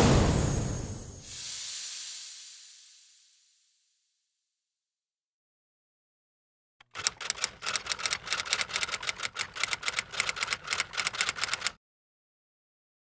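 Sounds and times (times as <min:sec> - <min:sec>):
typewriter keys clacking: 0:06.8 - 0:11.8.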